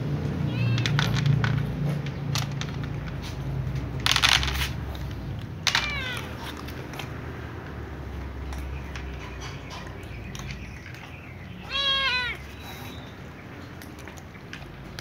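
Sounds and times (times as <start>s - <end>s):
cat meowing: 0.4s - 1.0s, 5.7s - 6.5s, 11.6s - 12.6s.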